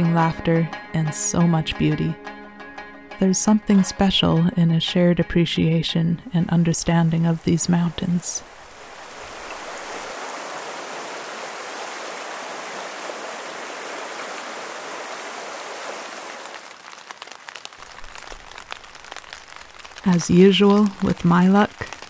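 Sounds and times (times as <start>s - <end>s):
creek rushing over rocks: 7.6s - 22.0s
rain tapping on a tent: 7.9s - 22.0s.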